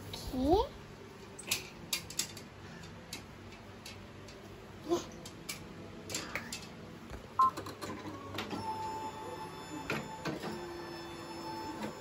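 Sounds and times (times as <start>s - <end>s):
embroidery machine motors whirring: 7.9s - 12.0s.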